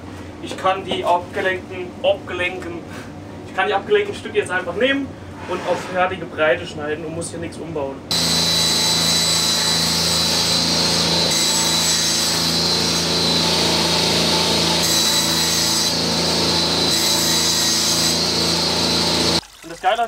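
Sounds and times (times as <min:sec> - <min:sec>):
circular saw cutting wood panel: 0:08.1 - 0:19.4.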